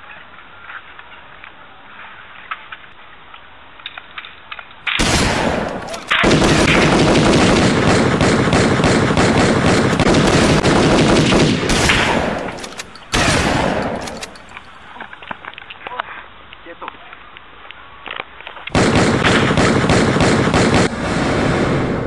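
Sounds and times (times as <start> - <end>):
automatic gunfire: 4.9 - 15.0, 18.7 - 21.2.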